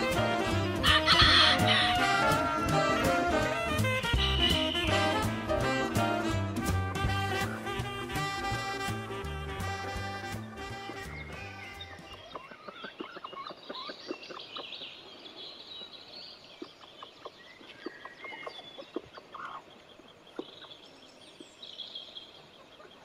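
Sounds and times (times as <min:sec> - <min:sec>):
hens clucking softly: 0:12.3 - 0:14.6.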